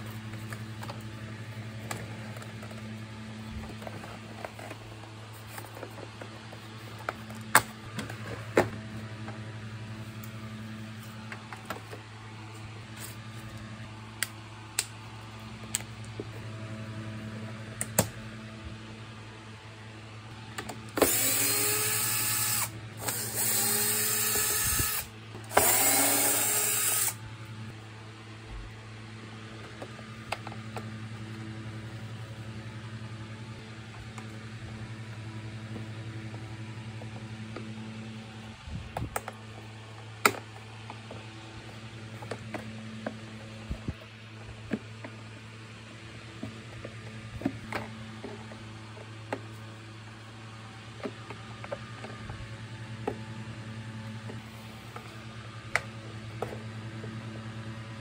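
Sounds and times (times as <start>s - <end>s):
cordless drill driving screws: 21.0s - 27.2s.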